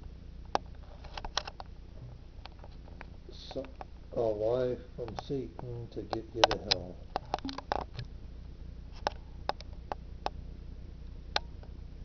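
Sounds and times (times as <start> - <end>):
steady low hum: 0.0 - 12.0
short light clicks: 6.1 - 8.1.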